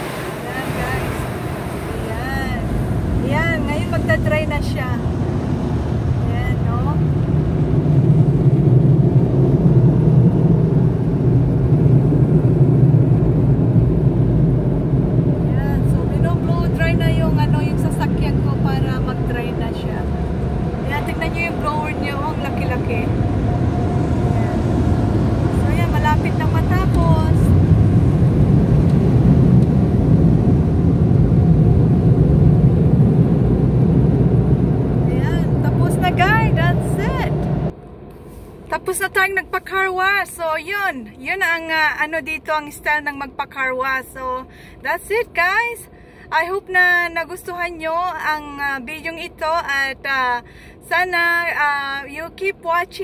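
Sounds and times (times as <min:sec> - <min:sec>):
car wash air blowers: 0:00.0 - 0:10.5
car wash blowers rumbling: 0:00.0 - 0:44.2.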